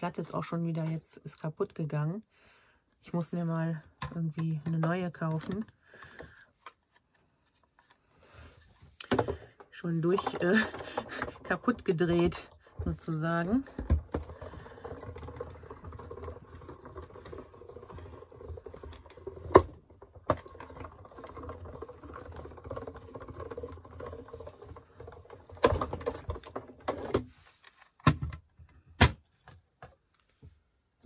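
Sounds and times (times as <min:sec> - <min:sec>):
machine rollers grinding: 0:09.9 - 0:27.1.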